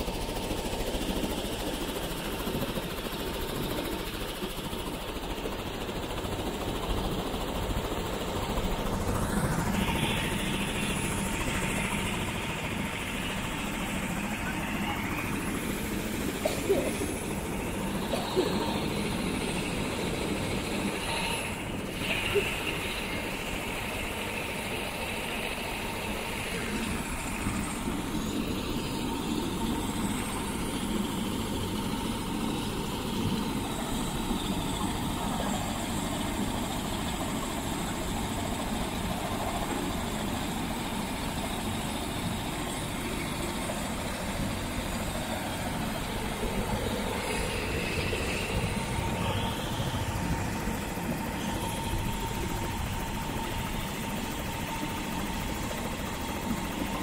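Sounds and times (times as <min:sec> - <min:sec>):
helicopter idling with rotor turning: 0:00.0 - 0:57.0.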